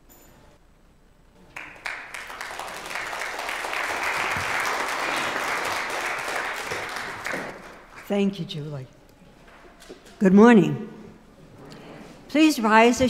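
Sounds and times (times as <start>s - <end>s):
congregation applauding: 1.5s - 8.2s.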